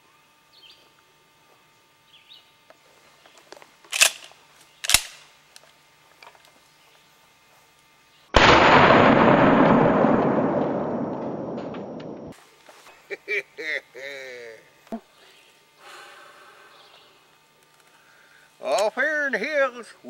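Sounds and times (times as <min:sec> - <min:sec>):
shotgun blast: 0:08.4 - 0:12.3.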